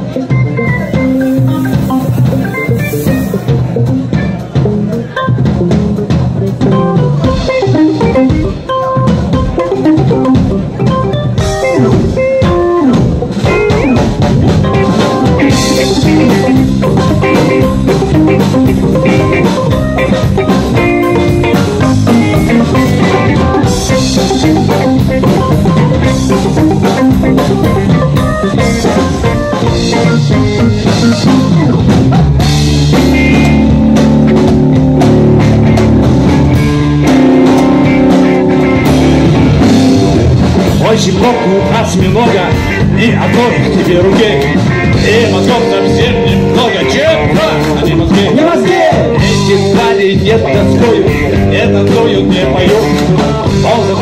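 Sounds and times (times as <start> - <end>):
drum kit: 0.0 - 54.0
electric guitar: 0.0 - 54.0
synthesizer keyboards: 6.7 - 40.7.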